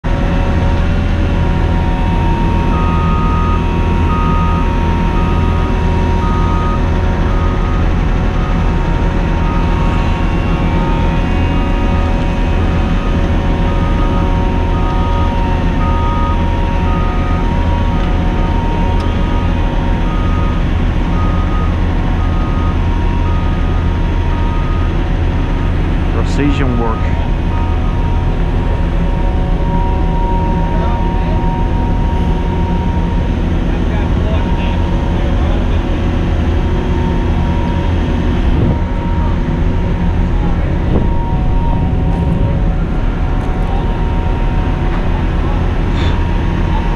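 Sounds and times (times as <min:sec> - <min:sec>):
diesel engine running: 0:00.0 - 0:46.9
steady whine: 0:00.1 - 0:46.9
alarm beeping: 0:01.3 - 0:33.6.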